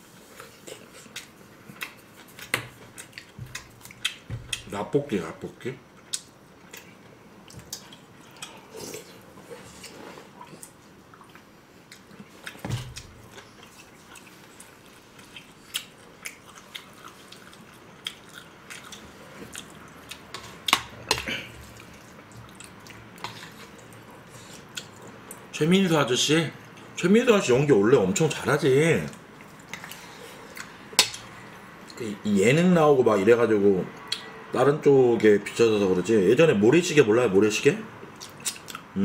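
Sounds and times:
people chewing food: 0.0 - 4.8, 5.9 - 25.5, 28.2 - 32.2, 38.0 - 39.0.

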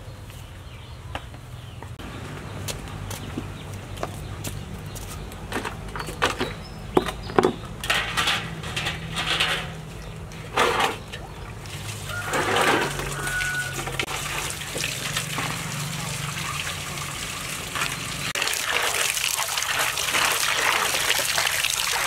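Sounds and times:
metal basin knocking and scraping: 5.5 - 16.0.

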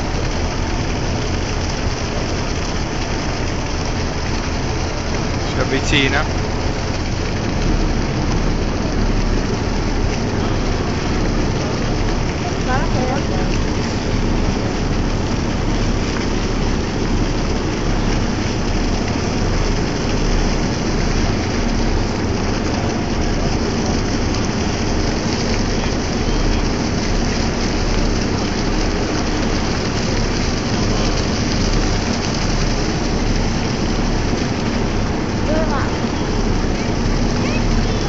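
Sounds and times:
boat engine wind and water rushing: 0.0 - 38.0.

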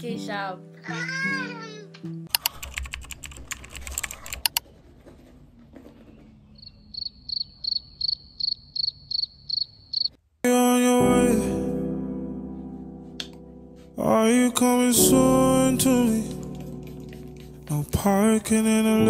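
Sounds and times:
music: 0.0 - 2.3, 10.5 - 19.0
cricket chirping: 6.6 - 10.2.

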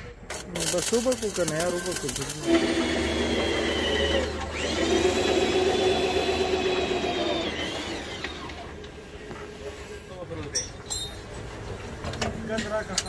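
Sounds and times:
power tool motor whining: 0.6 - 9.0.

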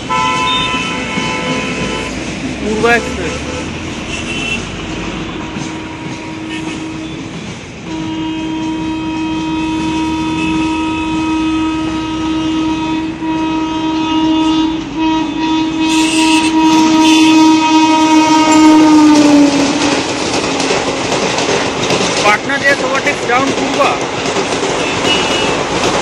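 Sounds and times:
locomotive horn blasts: 0.0 - 2.2, 2.8 - 20.1, 24.8 - 25.6
train running noise: 0.0 - 26.0.

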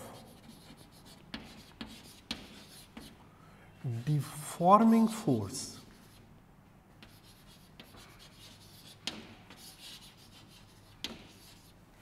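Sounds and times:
chalk scratching on chalkboard: 0.1 - 3.2, 5.8 - 6.3, 7.0 - 11.8.

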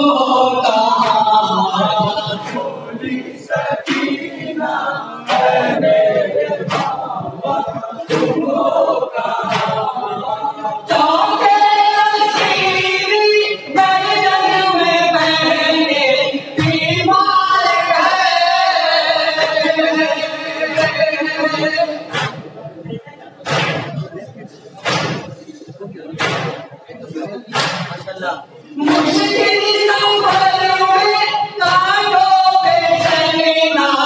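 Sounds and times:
voices through a microphone: 0.0 - 34.0
men chanting in chorus: 1.4 - 12.7
chest-beating slaps: 6.7 - 7.1, 9.4 - 9.9, 22.1 - 22.5, 23.4 - 24.1, 24.8 - 25.5, 26.2 - 26.7, 27.5 - 28.0.

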